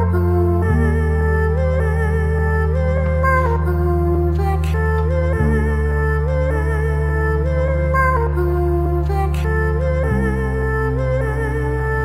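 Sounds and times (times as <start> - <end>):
slow instrumental music: 0.0 - 12.0.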